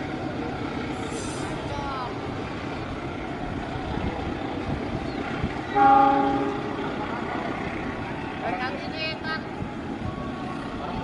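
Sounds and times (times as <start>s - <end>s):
electric train rumbling: 0.0s - 11.0s
train horn blast: 5.8s - 6.9s.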